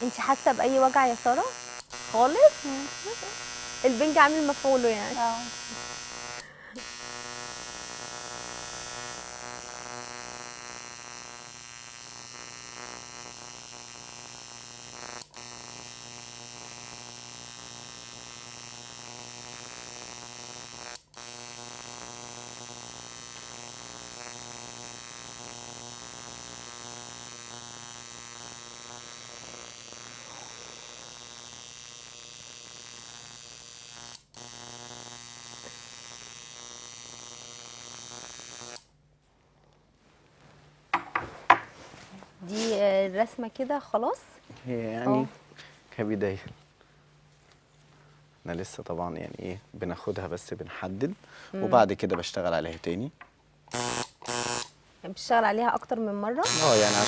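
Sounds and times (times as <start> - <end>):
tattoo machine buzzing: 0.0 - 38.9, 51.6 - 52.0, 53.7 - 54.8, 55.8 - 57.0.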